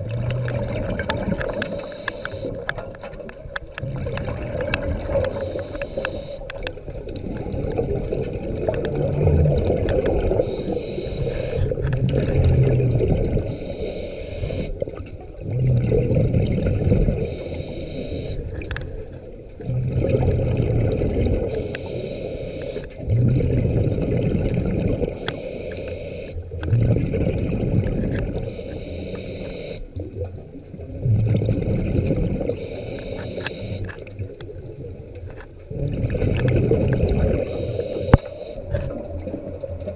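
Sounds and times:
exhaled bubbles rushing: 0.0s - 13.6s, 14.7s - 17.5s, 18.4s - 21.6s, 22.9s - 25.3s, 26.5s - 28.5s, 30.0s - 33.2s, 33.8s - 38.0s
regulator inhale hiss: 1.5s - 2.6s, 5.3s - 6.5s, 10.4s - 11.6s, 13.5s - 14.7s, 17.2s - 18.4s, 21.5s - 22.9s, 25.2s - 26.4s, 28.4s - 29.9s, 32.6s - 33.8s, 37.5s - 38.7s.

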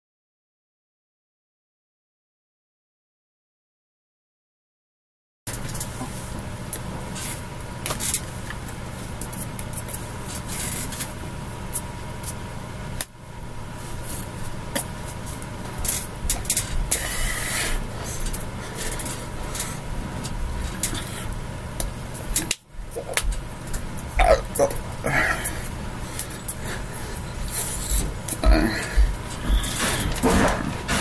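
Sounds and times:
low electrical hum: 5.5s - 31.0s.

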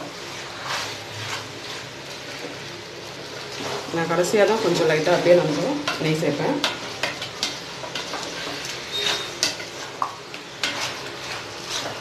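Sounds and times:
low frying sizzle: 0.0s - 12.0s
ladle scraping and knocking a pot: 5.8s - 12.0s.

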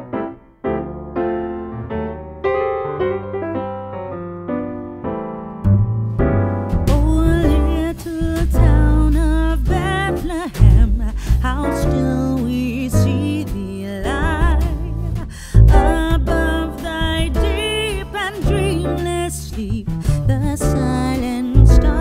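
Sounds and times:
electric piano notes: 0.0s - 11.0s
deep bass: 5.6s - 22.0s.

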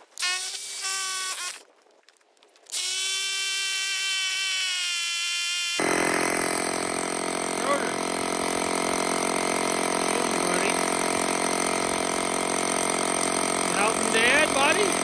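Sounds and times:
power drill motor whining: 0.0s - 1.6s, 2.7s - 15.0s
engine running: 5.8s - 15.0s.

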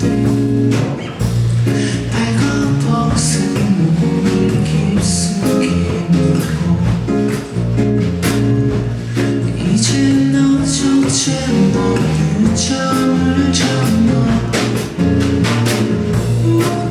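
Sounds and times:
acoustic guitar: 0.0s - 16.9s
man singing into a microphone: 1.8s - 7.4s, 9.4s - 15.1s, 16.3s - 16.9s.

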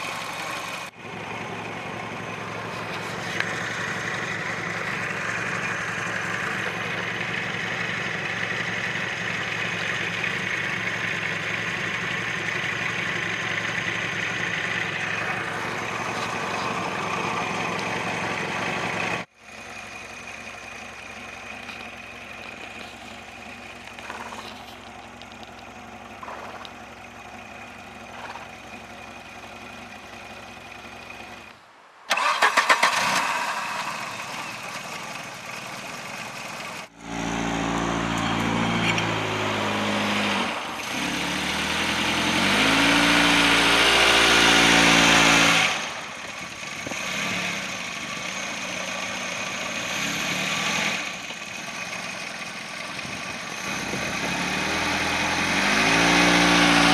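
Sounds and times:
rapid engine pulses: 0.0s - 31.5s
car engine running: 0.0s - 56.9s.

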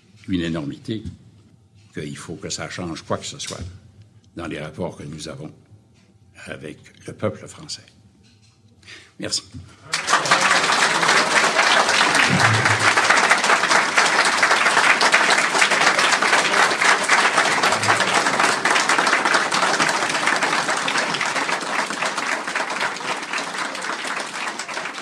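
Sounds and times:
audience applauding: 9.9s - 25.0s.

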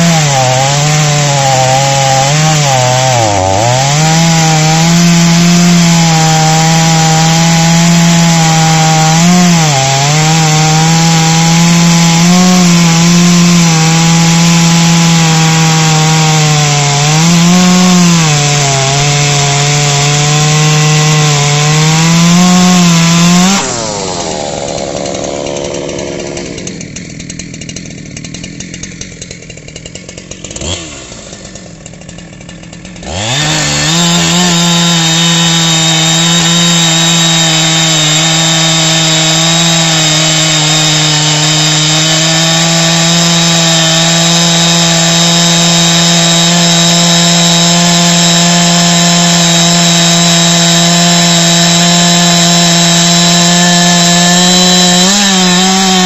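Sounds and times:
chainsaw cutting log at full throttle: 0.0s - 56.0s
chainsaw falling off full revs: 0.0s - 56.0s.

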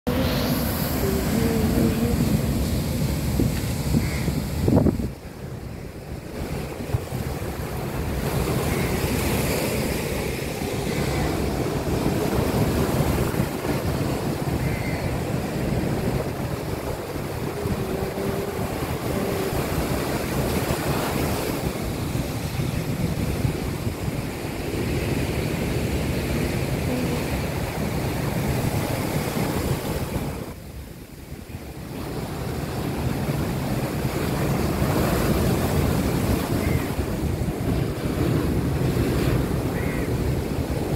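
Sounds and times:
wind buffeting microphone: 0.1s - 30.9s
waves crashing on seawall: 0.1s - 40.9s.

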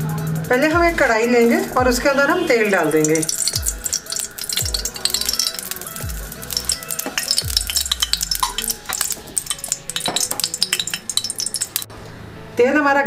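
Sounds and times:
oil crackling and spitting: 2.7s - 11.9s.

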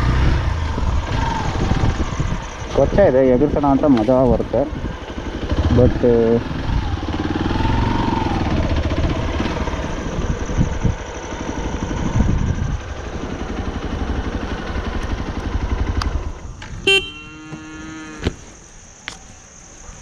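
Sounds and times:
motorcycle engine running: 0.0s - 18.2s
steady held tone: 16.9s - 17.6s.

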